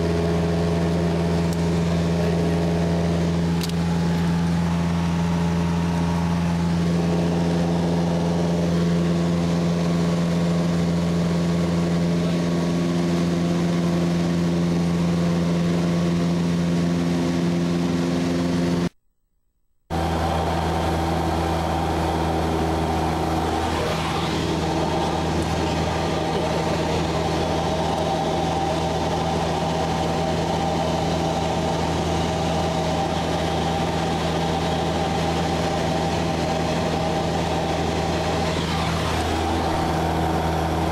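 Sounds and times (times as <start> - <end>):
light aircraft engine droning: 0.0 - 18.9, 19.9 - 40.9.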